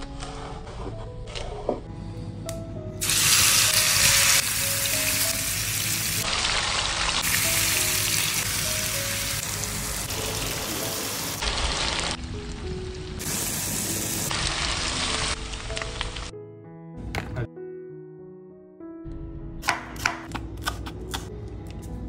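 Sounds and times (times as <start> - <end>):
background music: 0.0 - 22.0
food sizzling in hot oil: 3.0 - 12.2, 13.2 - 16.3.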